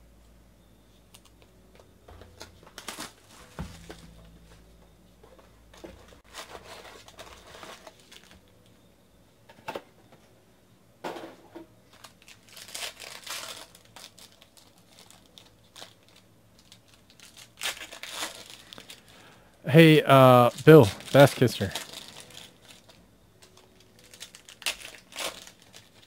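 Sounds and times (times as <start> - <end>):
foil card packs crinkling: 2.2 - 4.5, 5.8 - 8.5, 11.9 - 19.4, 20.1 - 26.0
card pack tearing open: 2.7 - 3.4, 12.0 - 19.3, 20.5 - 26.0.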